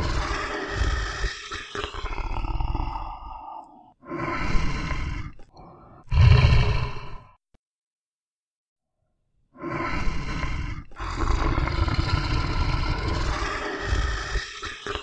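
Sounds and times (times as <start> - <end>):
bear growling: 0.0 - 7.3, 9.6 - 15.0.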